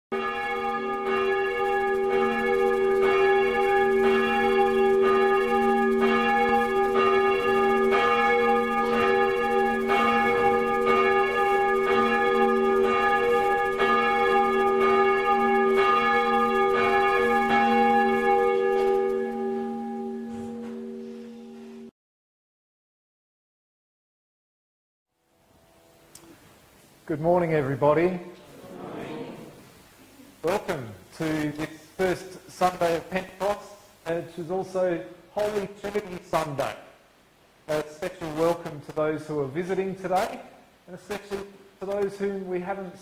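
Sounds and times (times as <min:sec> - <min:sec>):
church bell tolling: 0:00.1 - 0:21.9.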